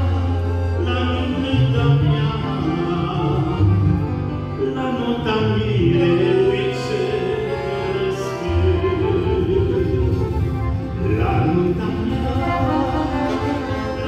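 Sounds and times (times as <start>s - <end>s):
man singing a hymn: 0.0s - 14.0s
piano accordion chords: 0.0s - 14.0s.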